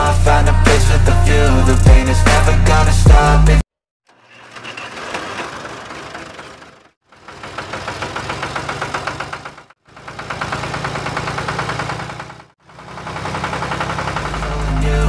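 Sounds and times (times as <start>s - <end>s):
engine knocking rhythmically: 5.0s - 15.0s.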